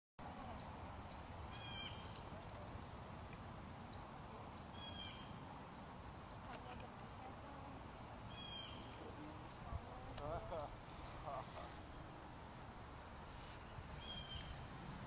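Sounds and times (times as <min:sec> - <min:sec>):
light ticks: 0:02.1 - 0:04.7, 0:08.1 - 0:11.1
low wind rumble: 0:08.3 - 0:15.0.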